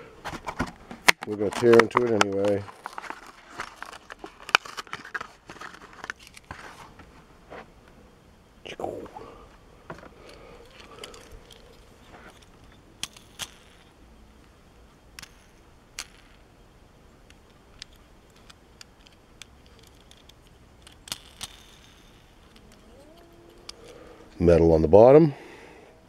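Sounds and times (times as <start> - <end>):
blister pack tearing and clicks: 1.0 - 6.6.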